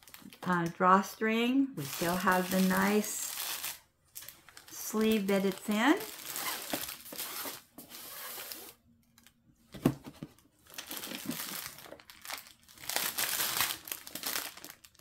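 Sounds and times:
fabric bag rustling and crinkling: 1.8 - 8.8, 10.6 - 15.0.

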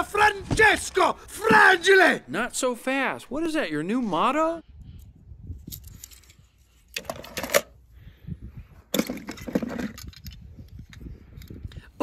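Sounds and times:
plastic balls and toy cars rattling: 8.9 - 10.4.

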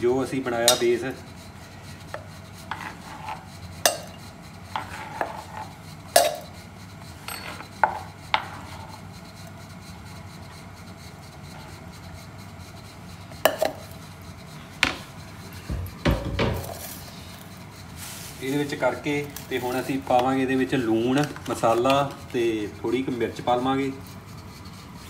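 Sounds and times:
utensils and dishes clinking: 0.6 - 1.1, 3.8 - 4.2, 6.2 - 6.6.

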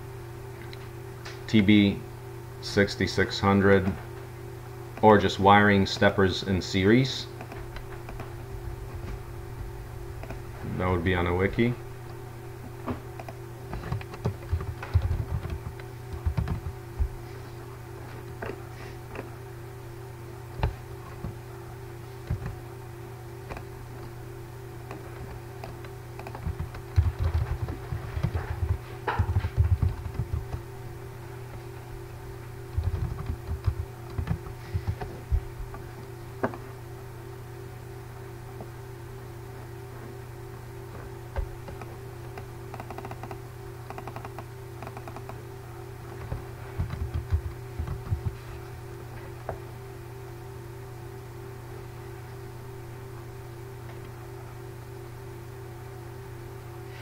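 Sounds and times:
low steady hum: 0.0 - 57.0
typing on computer keyboard: 13.2 - 16.8, 25.6 - 30.6, 32.7 - 35.1, 42.7 - 45.4, 46.2 - 48.4.

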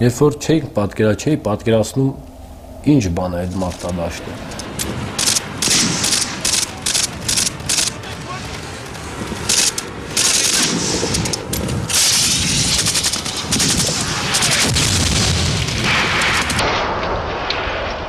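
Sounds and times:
automatic rifle gunfire: 5.2 - 8.7, 9.4 - 17.1.

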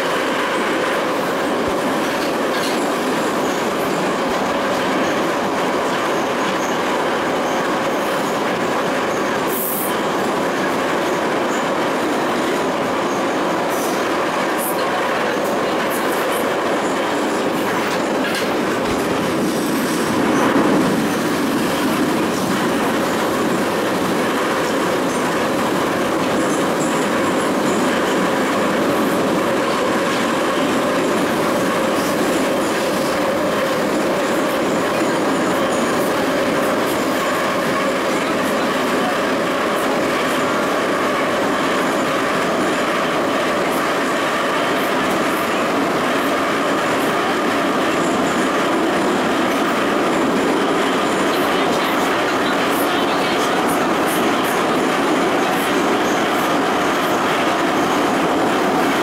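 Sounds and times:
wheels rumbling on rail: 0.0 - 59.0
sharp rail clicks: 13.6 - 59.0.

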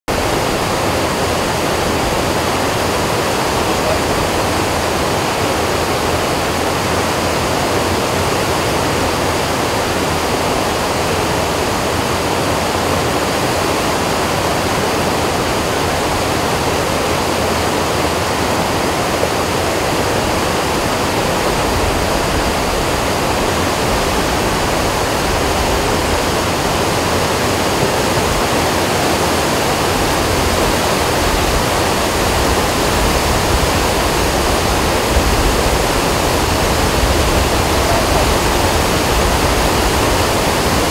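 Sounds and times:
river rushing: 0.1 - 40.9.

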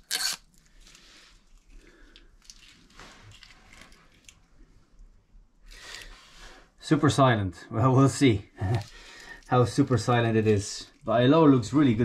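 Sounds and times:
handling rustling and scraping: 0.0 - 4.4.

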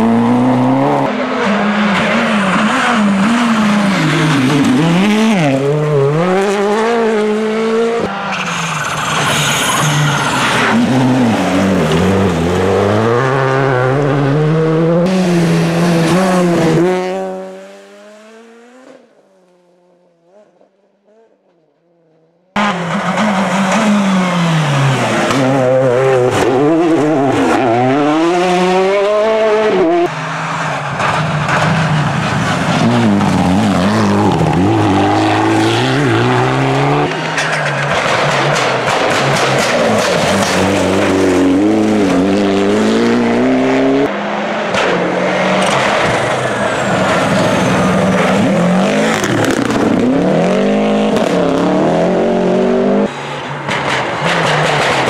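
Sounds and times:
rally car engines revving: 0.0 - 21.3, 22.5 - 55.0.

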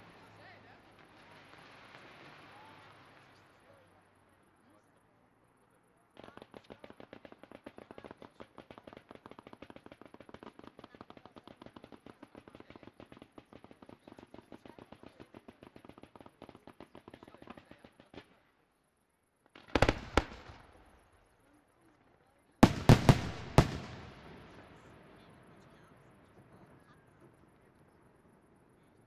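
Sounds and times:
small firework pops: 0.8 - 3.6, 6.1 - 18.6, 19.4 - 28.3
loud firework shell bursts: 19.5 - 21.3, 22.6 - 25.2.

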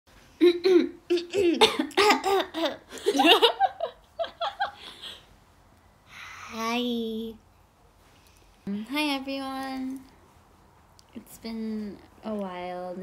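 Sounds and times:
women laughing: 2.9 - 5.2.

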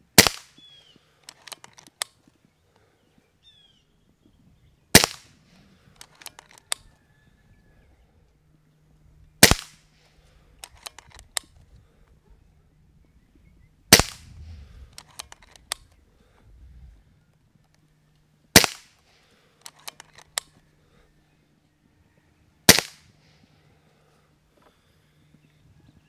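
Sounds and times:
air rifle shots: 0.1 - 0.6, 4.9 - 5.4, 9.4 - 10.0, 13.9 - 15.9, 18.5 - 19.0, 22.7 - 23.1
rifle action clicks: 1.2 - 2.2, 5.0 - 6.9, 10.6 - 11.6, 13.9 - 16.0, 19.6 - 20.6.

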